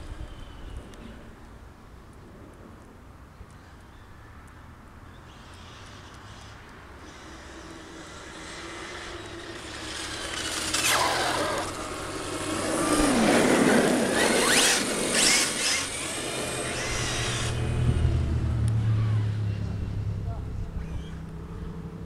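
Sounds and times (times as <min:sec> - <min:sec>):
tyre noise on asphalt: 0:05.2 - 0:19.9
rc car motor whine: 0:05.3 - 0:19.6.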